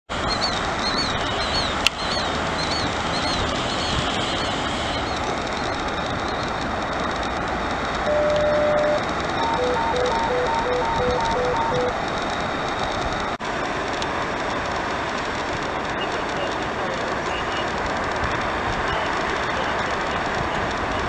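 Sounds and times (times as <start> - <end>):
loud rushing noise: 0.1 - 16.0
steady tone: 8.0 - 13.0
high chirps: 8.1 - 12.0
two-note beeping signal: 8.1 - 12.0.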